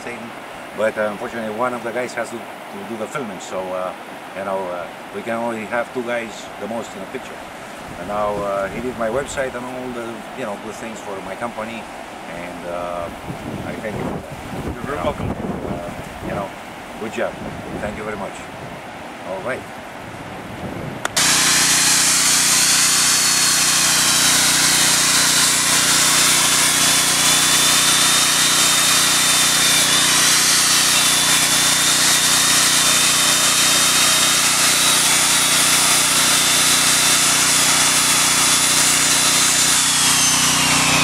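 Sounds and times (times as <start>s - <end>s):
angle grinder wire brush on steel: 21.2s - 41.0s.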